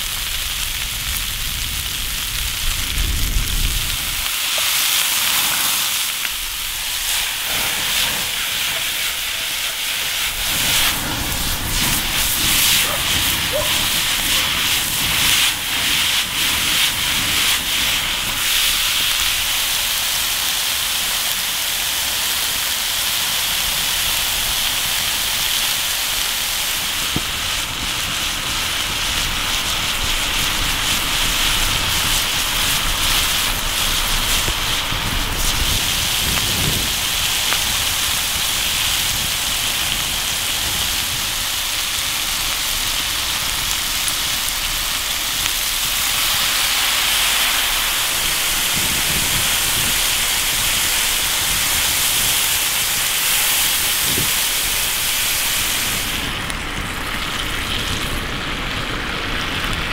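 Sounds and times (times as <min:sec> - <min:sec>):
food sizzling in a pan: 0:00.0 - 0:56.4
wood fire crackling: 0:00.0 - 0:59.9.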